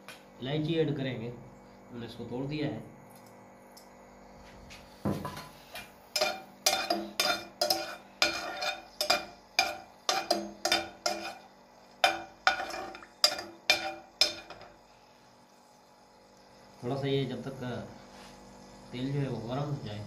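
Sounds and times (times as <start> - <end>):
metal spoon scraping a pot: 6.1 - 14.8.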